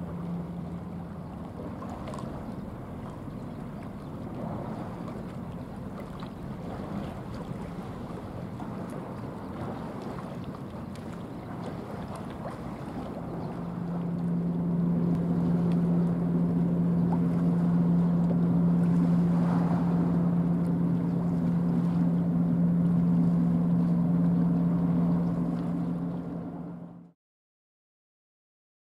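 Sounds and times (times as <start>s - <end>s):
boat engine drone: 0.0s - 27.2s
wind on microphone: 15.0s - 22.3s.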